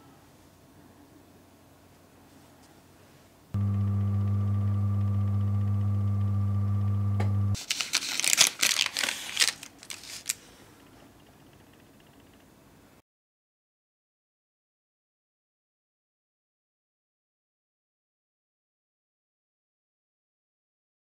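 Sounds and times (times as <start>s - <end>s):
oven electrical hum: 3.5s - 13.0s.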